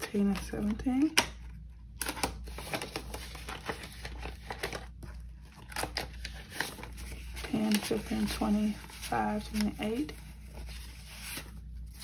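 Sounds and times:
banknotes rustling and flicking: 2.4 - 12.0.

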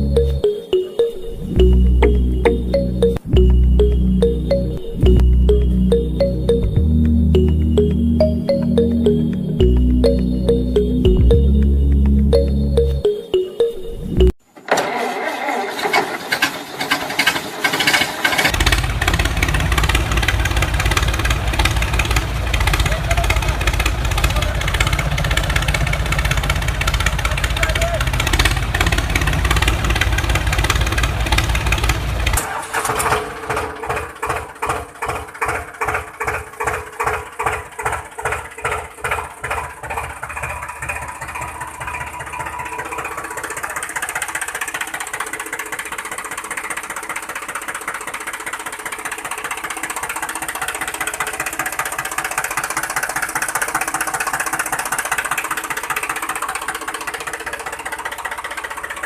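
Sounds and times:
tractor engine chugging: 15.8 - 59.0.

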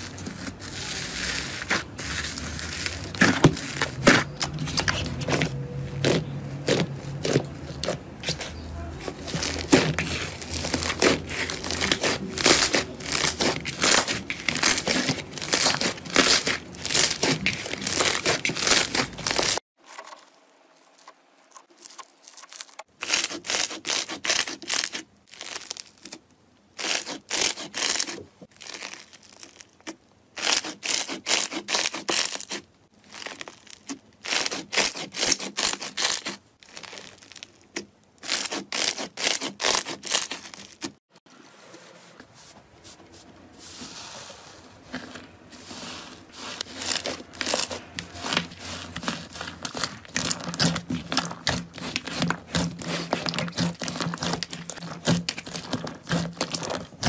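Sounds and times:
hands squishing slime: 0.0 - 19.6, 44.1 - 57.0.

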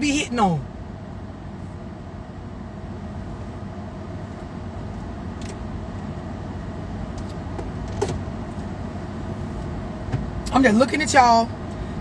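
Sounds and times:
faint steady hum: 0.0 - 12.0
car cabin rumble: 3.7 - 12.0.

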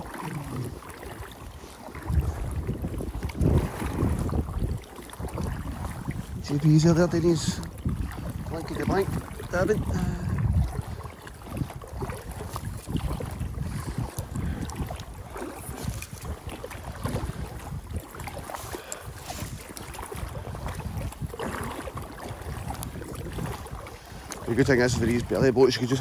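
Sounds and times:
water lapping against boat: 0.0 - 26.0
wind gusting on microphone: 0.0 - 26.0.

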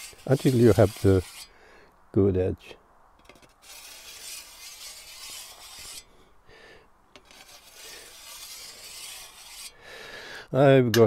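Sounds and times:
grinding wheel honing scythe blade: 0.0 - 1.5, 3.2 - 6.0, 7.2 - 9.8.

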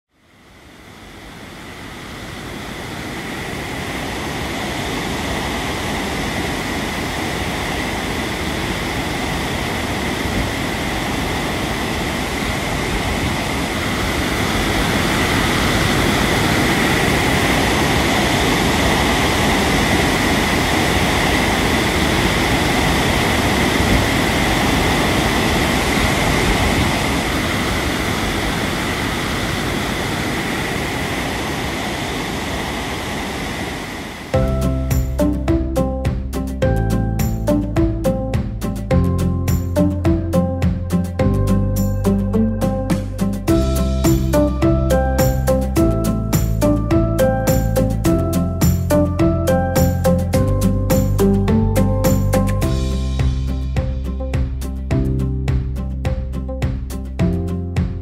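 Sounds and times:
drone propellers whining: 39.8 - 52.9.

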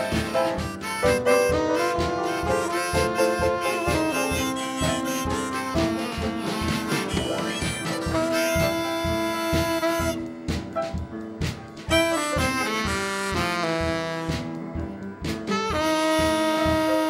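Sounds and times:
saxophone holding long notes: 0.0 - 10.6, 11.9 - 14.8, 15.5 - 17.0
drum kit steady beat: 0.0 - 17.0
upright piano: 0.0 - 17.0.

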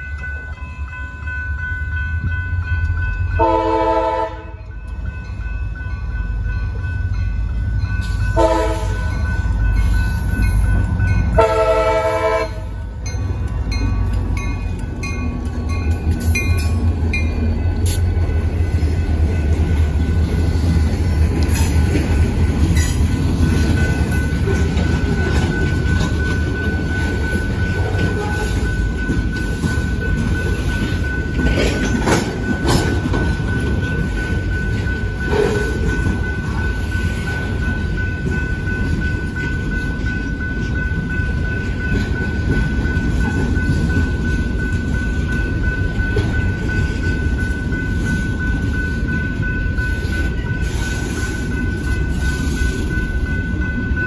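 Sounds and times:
crossing bell ringing: 0.0 - 54.0
locomotive engines rumbling: 0.0 - 54.0
train horn blasts: 3.4 - 4.6, 8.4 - 9.0, 11.4 - 12.8
train wheels clicking over rail joints: 13.0 - 54.0.

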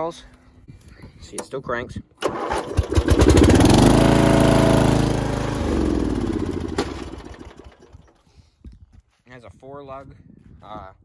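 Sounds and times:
mower engine starting and running: 2.2 - 8.2.

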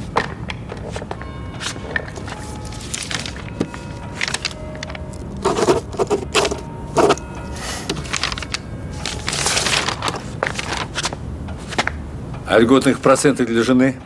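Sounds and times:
papers rustling: 0.2 - 12.0
pen scratching on paper: 5.4 - 7.8.

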